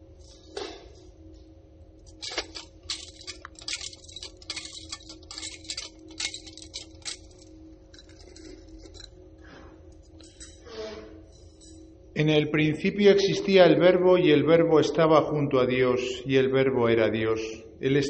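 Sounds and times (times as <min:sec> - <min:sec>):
faint steady hum: 0:00.0 - 0:18.0
censer chains clinking: 0:02.0 - 0:09.3, 0:09.9 - 0:10.7, 0:11.4 - 0:12.0.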